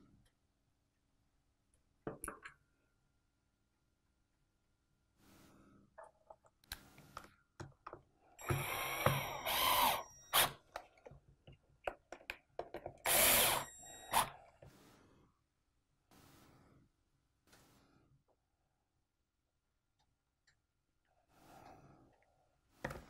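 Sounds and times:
cordless drill whining: 0:08.4 - 0:10.8, 0:13.0 - 0:14.5
parts clicking and knocking: 0:10.4 - 0:13.2.

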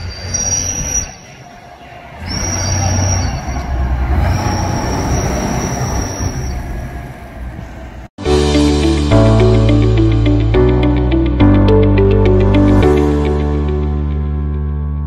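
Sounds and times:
armoured vehicle engine and tyre rumble: 0:00.0 - 0:08.1.

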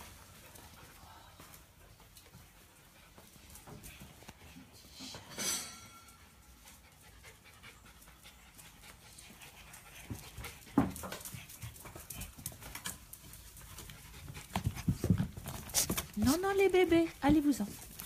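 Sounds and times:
small dog panting: 0:06.4 - 0:18.0.

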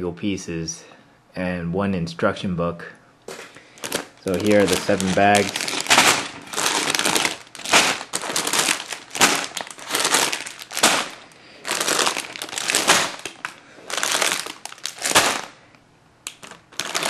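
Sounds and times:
plastic bags crinkling: 0:03.3 - 0:17.0.

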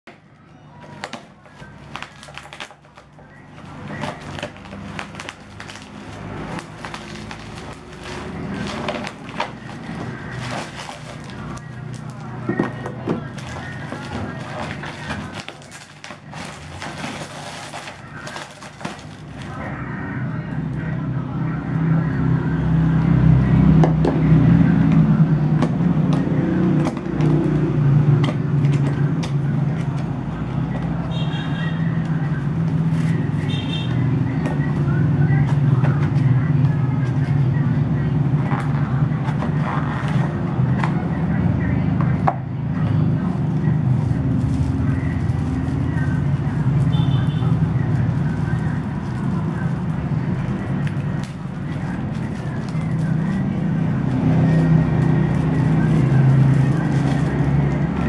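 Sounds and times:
knife cutting packaging: 0:00.8 - 0:19.6
plastic packaging crinkling: 0:00.8 - 0:19.6, 0:43.9 - 0:58.0.

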